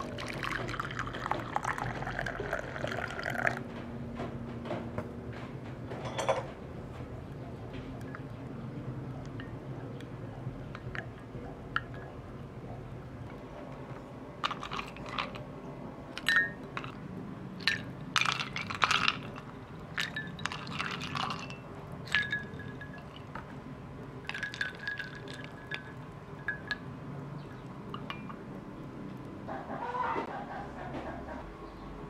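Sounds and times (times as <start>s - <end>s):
spoon and ice clinking in glass: 14.4s - 15.4s, 16.2s - 17.0s, 17.6s - 23.5s, 24.2s - 26.9s, 27.9s - 28.4s.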